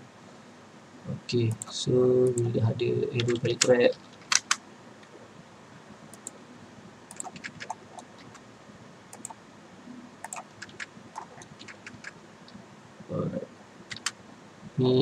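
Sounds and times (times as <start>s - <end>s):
faint background hiss: 0.0s - 15.0s
mouse and keyboard clicks: 7.1s - 8.4s, 9.1s - 9.4s, 10.2s - 12.2s, 13.9s - 14.2s.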